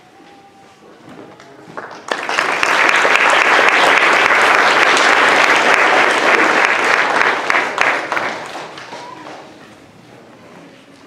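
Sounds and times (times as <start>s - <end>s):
audience applause: 1.8s - 9.6s.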